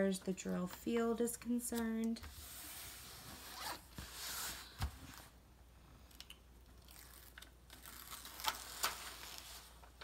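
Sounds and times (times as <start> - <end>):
plastic film rustling and crackling: 6.8 - 10.0.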